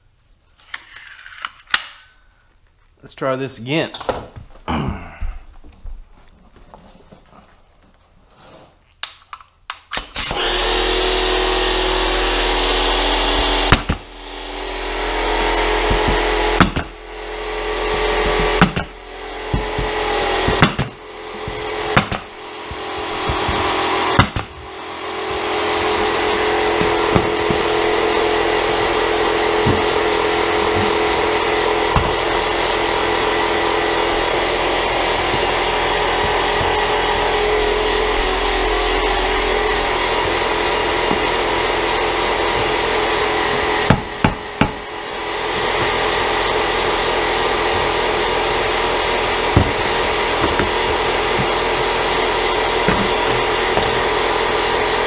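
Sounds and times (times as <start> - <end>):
pneumatic brad nailer shots: 9.9 - 33.9
air compressor motor humming: 10.2 - 55.0.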